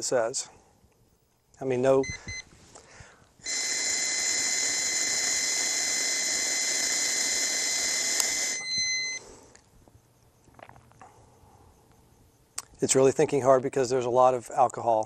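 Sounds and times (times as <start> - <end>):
continuous high beep: 2.0 - 2.5, 3.4 - 9.4.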